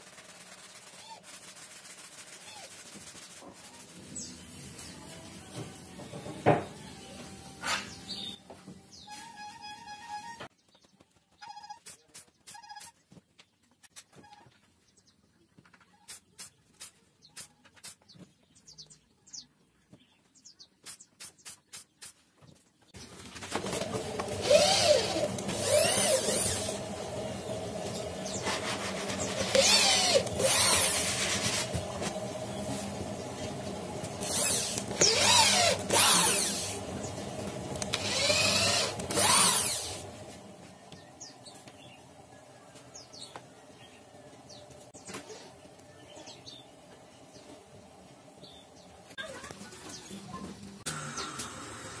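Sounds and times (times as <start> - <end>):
steady hum: 23.5 - 49.2
electric drill driving screws: 23.6 - 27.1, 29.0 - 32.2, 34.0 - 40.2.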